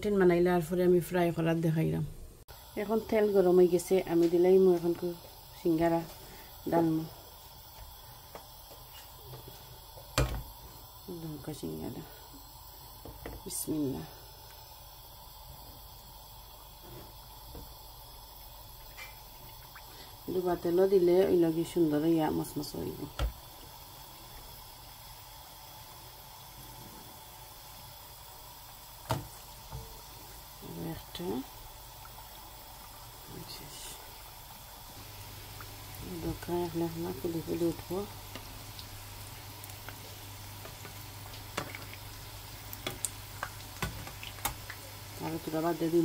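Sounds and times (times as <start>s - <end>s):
food sizzling in hot oil: 2.4s - 46.0s
sharp pops of frying oil: 7.8s - 10.6s, 18.4s - 20.0s, 23.1s - 23.6s, 29.0s - 30.0s, 37.8s - 45.3s.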